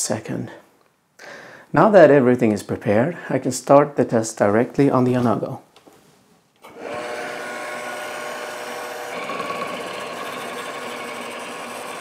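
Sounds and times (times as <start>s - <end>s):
machine drive running: 6.6s - 12.0s.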